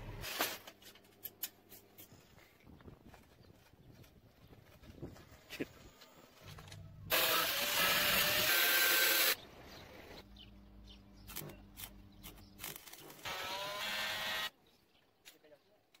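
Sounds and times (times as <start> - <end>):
welder humming: 13.2 - 14.5.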